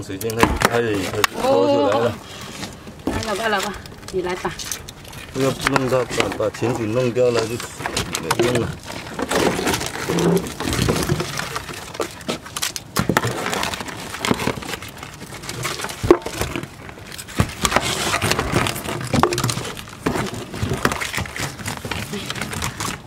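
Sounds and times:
plastic bottle crinkling: 0.0s - 23.0s.

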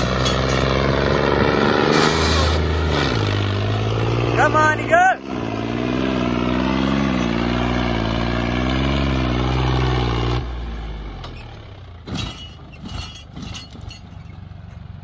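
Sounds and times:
tractor diesel engine working hard: 0.0s - 15.0s.

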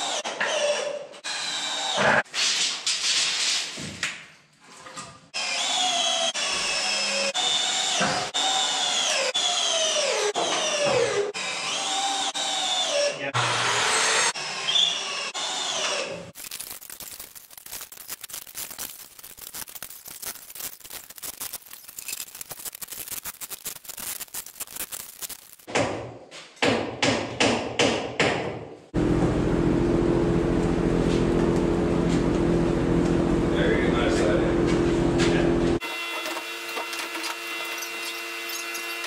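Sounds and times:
hammer hitting nails: 25.7s - 28.6s.

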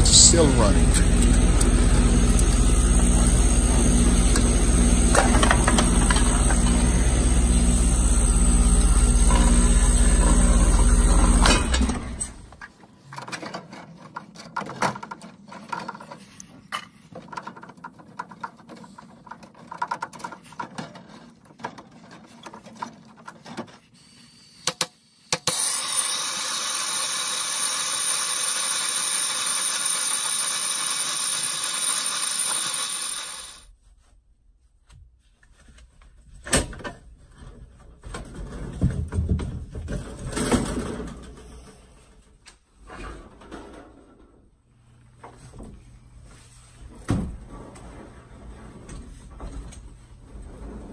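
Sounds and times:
condensing unit humming: 0.0s - 12.6s.

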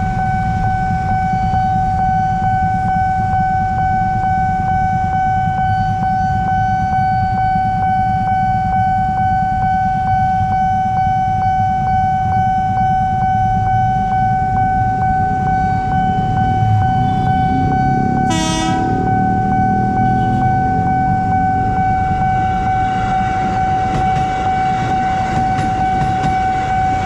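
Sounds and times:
railroad crossing bell ringing: 0.0s - 27.0s
vehicle engines idling: 11.8s - 27.0s.

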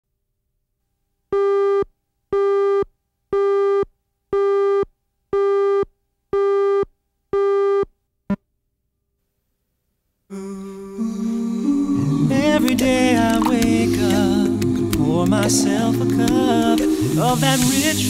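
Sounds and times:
music: 10.4s - 18.0s.

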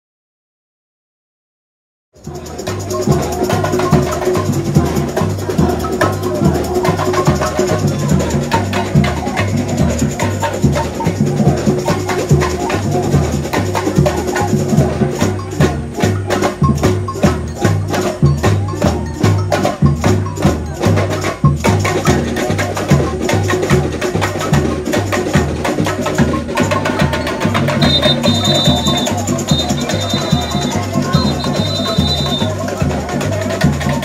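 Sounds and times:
bass drums: 2.2s - 34.0s
rapid high percussion: 2.2s - 34.0s
high whistle: 27.7s - 32.6s.

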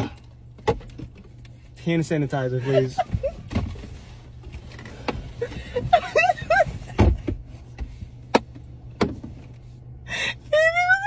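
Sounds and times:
knocks and thumps in car: 0.0s - 1.4s, 3.0s - 9.5s
woman giggling: 2.6s - 3.4s, 5.4s - 6.9s.

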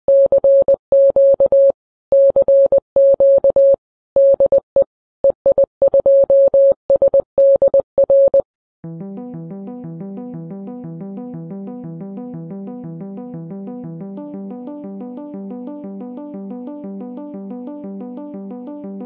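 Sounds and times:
morse code beeping: 0.1s - 8.4s
synthesizer music: 8.8s - 19.0s.

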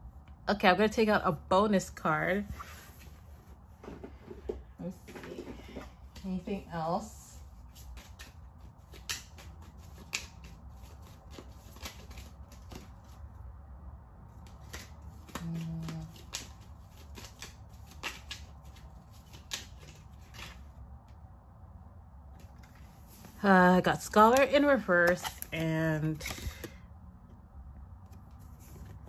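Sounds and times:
cards being shuffled: 7.4s - 13.3s, 14.3s - 21.2s, 22.3s - 26.8s, 27.8s - 29.0s.

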